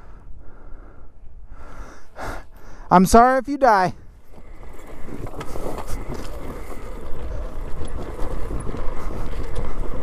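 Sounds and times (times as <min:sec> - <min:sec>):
bike rattles and knocks: 0:04.2 - 0:10.0
tyres crunching over dirt: 0:04.2 - 0:10.0.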